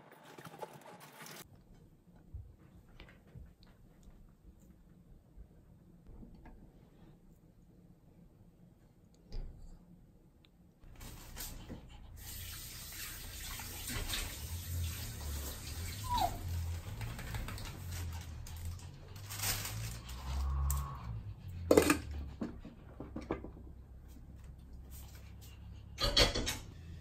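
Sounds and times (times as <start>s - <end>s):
water running: 11.0s - 18.0s.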